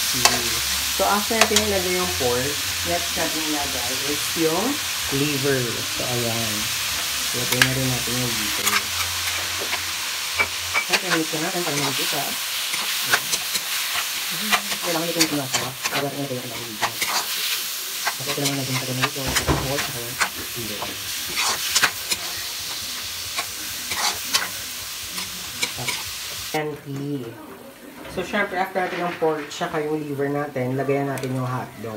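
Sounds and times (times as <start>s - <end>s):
meat sizzling in hot oil: 0.0s - 26.6s
metal spatula scraping a wok: 8.6s - 26.5s.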